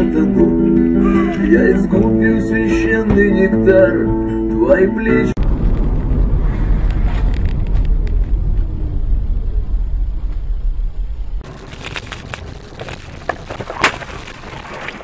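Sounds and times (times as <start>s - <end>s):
car engine and road rumble: 5.3s - 15.0s.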